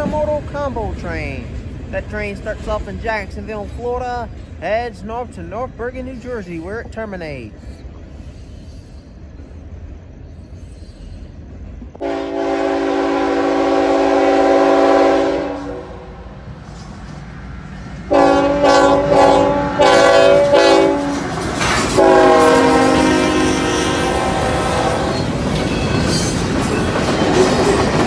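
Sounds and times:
rumble of passing train: 0.0 - 28.0
locomotive air horn blasts: 12.0 - 16.2, 18.1 - 21.2, 21.9 - 25.1.

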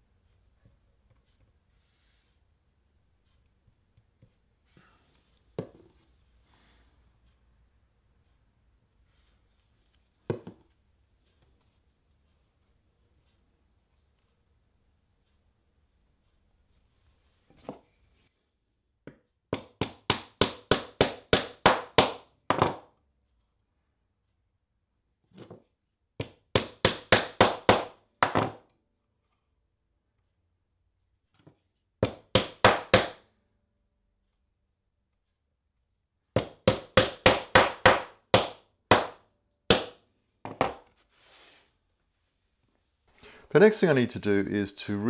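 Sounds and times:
hammer tapping: 19.0 - 22.8, 26.2 - 28.5, 32.0 - 33.2, 36.4 - 40.8.

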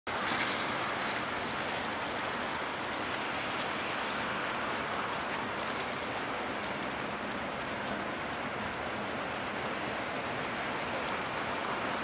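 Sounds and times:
rushing outdoor background noise: 0.1 - 12.0.

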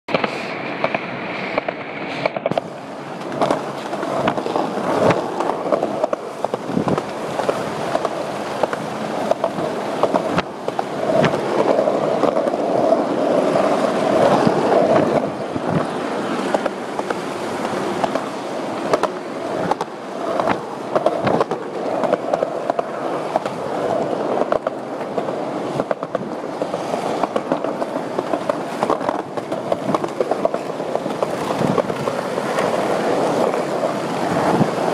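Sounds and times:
sharp skateboard clicks and knocks: 0.1 - 34.9
skateboards rolling over concrete: 0.1 - 34.9.

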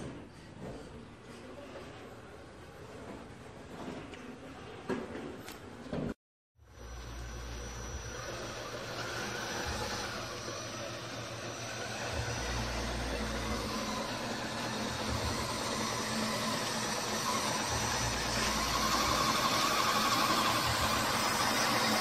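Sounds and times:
high whine: 6.6 - 22.0
electric motor and gearbox running: 6.7 - 22.0.

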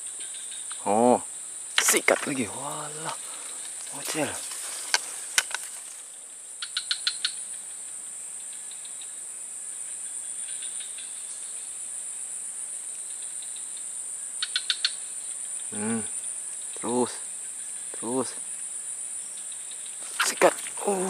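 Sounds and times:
insect chorus drone: 0.0 - 21.0
sharp clicks: 1.8 - 2.4, 4.9 - 5.7.

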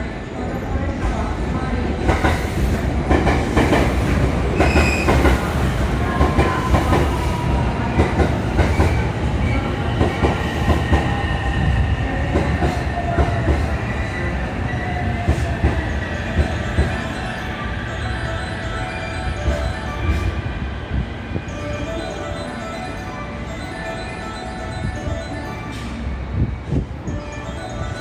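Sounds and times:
train rumble: 0.0 - 22.6.

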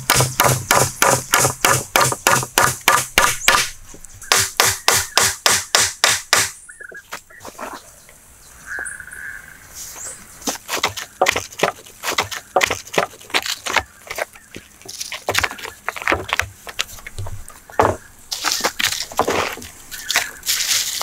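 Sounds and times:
wood-on-wood knocking: 10.8 - 18.0.

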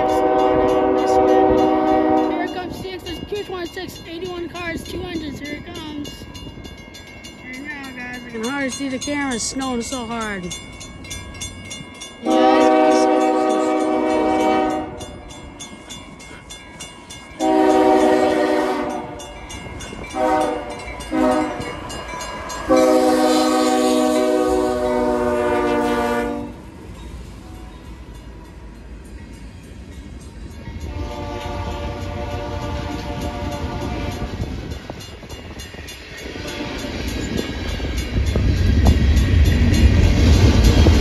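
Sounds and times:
locomotive air horn blasts: 0.0 - 2.6, 12.2 - 15.1, 17.4 - 19.2, 20.1 - 21.8, 22.7 - 26.6, 30.8 - 34.4, 36.4 - 36.9
locomotive rumble passing: 0.0 - 41.0.

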